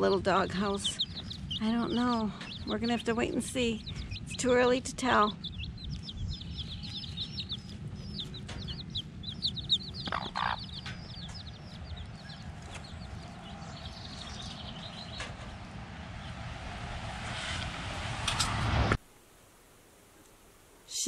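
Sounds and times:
baby chicks peeping: 0.0 - 16.3
hen clucking: 0.3 - 15.3.

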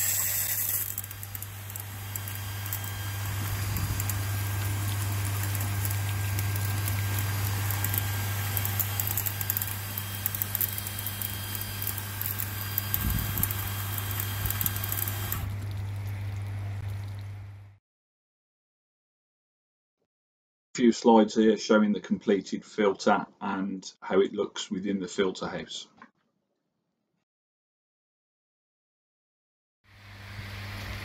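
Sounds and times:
water jets hissing and splashing: 0.0 - 17.1
low electric hum: 0.1 - 17.8.

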